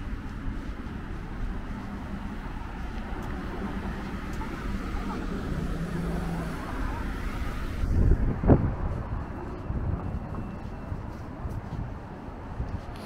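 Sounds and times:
road traffic rumble: 0.0s - 13.0s
faint distant voices: 2.5s - 7.8s.

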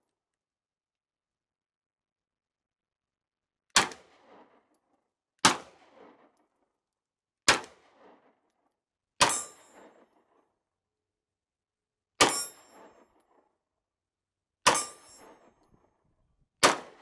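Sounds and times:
pistol shots with echo: 3.8s - 4.7s, 5.4s - 6.3s, 7.5s - 8.4s, 9.2s - 10.3s, 16.6s - 17.0s.

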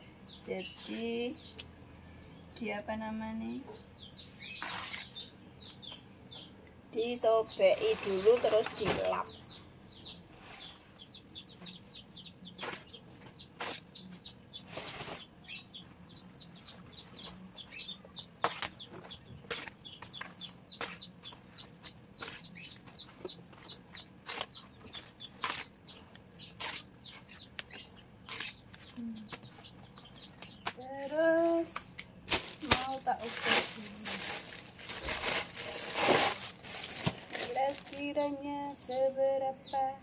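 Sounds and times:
bird chirping: 0.0s - 31.7s, 32.7s - 40.0s
banana leaves rustling and tapping: 7.7s - 9.4s, 18.4s - 25.7s, 30.4s - 38.2s.

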